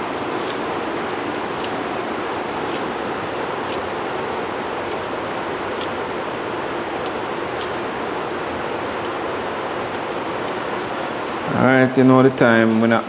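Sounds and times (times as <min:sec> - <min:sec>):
steady rushing background noise: 0:00.0 - 0:13.0
knife slicing scallion: 0:00.4 - 0:01.8, 0:02.6 - 0:03.0, 0:03.6 - 0:03.9, 0:04.7 - 0:05.1.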